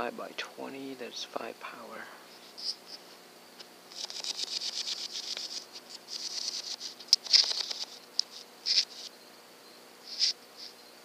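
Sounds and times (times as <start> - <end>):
insects chirping: 2.2 - 11.0.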